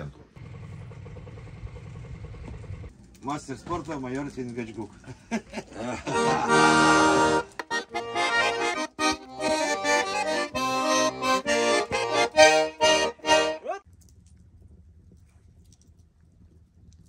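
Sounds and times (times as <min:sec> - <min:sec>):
button accordion folk tune: 0:06.1 - 0:13.8.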